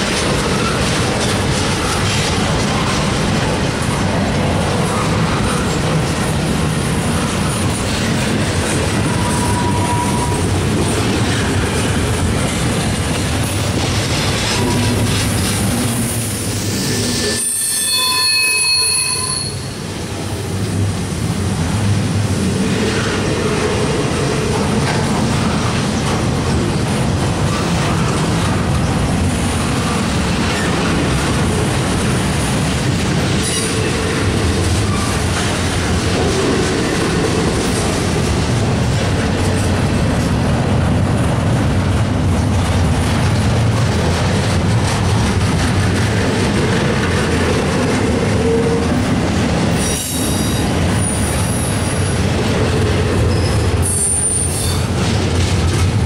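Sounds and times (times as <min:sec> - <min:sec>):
train wheels rumbling on rails: 0:00.0 - 0:56.0
wheel squeal: 0:09.1 - 0:10.4, 0:16.8 - 0:19.8
high ringing tone: 0:17.3 - 0:19.8.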